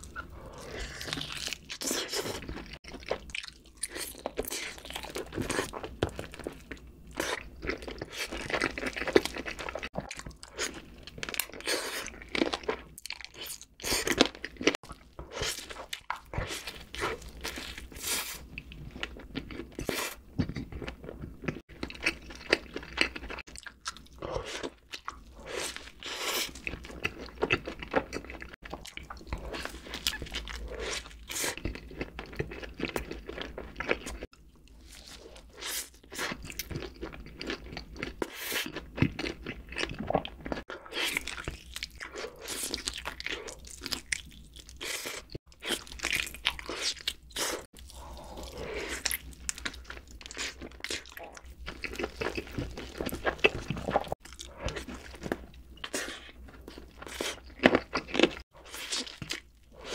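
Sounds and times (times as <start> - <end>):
chewing with crunches: 0.0 - 59.9.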